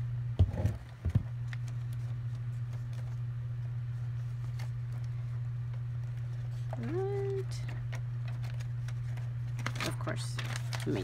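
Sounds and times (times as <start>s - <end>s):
laminator humming: 0.0s - 11.0s
room fan: 0.0s - 11.0s.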